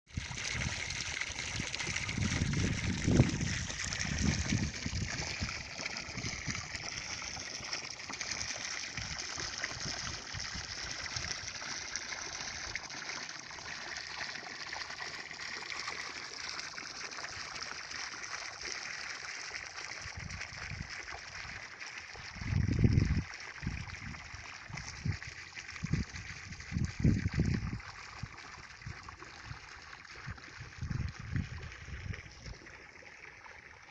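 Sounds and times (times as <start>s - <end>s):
wind buffeting microphone: 0.1s - 6.7s, 22.3s - 25.2s, 25.8s - 29.0s, 30.6s - 32.6s.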